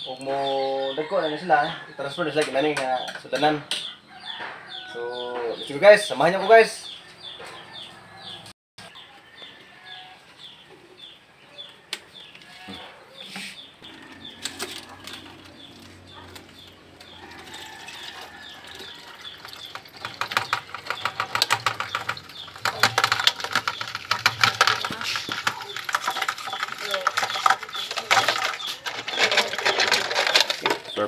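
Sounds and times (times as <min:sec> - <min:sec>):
poultry chirping: 0:03.9 - 0:31.0
plastic bottle crinkling: 0:17.6 - 0:31.0.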